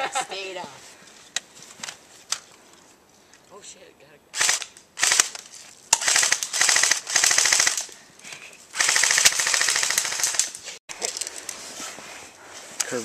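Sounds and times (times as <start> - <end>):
airsoft gun firing full-auto: 4.4 - 7.9, 8.8 - 10.4.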